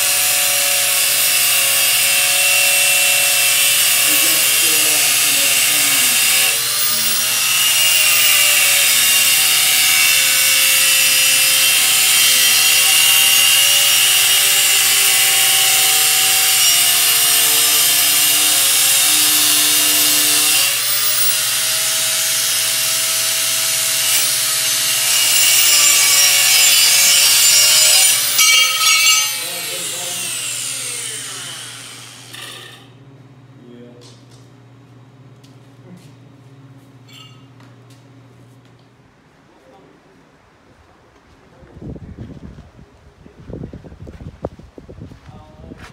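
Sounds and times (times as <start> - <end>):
angle grinder grinding metal: 0.0 - 33.0.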